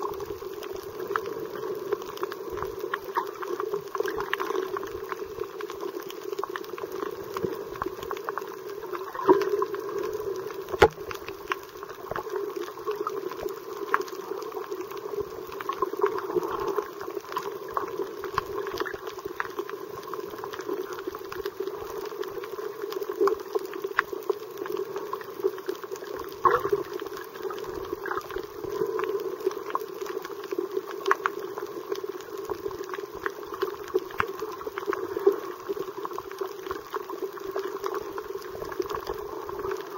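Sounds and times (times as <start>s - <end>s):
underwater bubbling rush: 0.0s - 39.9s
underwater clicks and pops: 10.7s - 11.4s.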